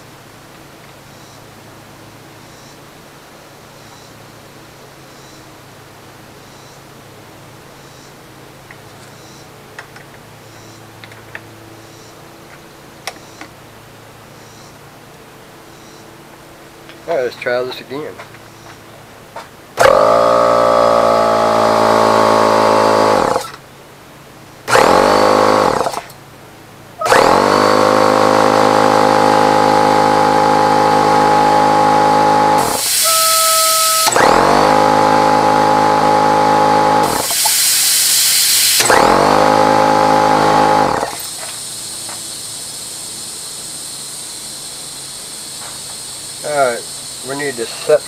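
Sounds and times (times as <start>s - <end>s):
air compressor running: 19.8s - 23.6s, 24.6s - 26.2s, 26.9s - 48.0s
loud bursts of hissing air: 19.8s - 23.6s, 27.0s - 48.0s
steady air hiss: 32.5s - 34.1s, 37.0s - 38.9s, 40.6s - 48.0s.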